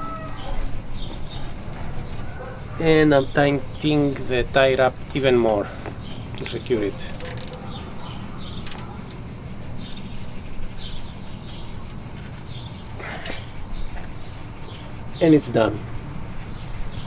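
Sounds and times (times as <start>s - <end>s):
crickets chirring: 0.0s - 17.0s
faint clicks: 7.1s - 7.7s, 8.5s - 9.0s.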